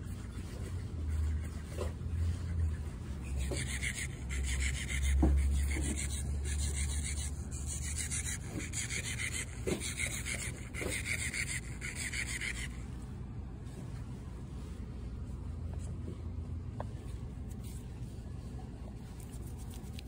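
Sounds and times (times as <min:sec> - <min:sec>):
rubbing and scraping on microphone: 0:00.0 - 0:12.9, 0:17.0 - 0:20.0.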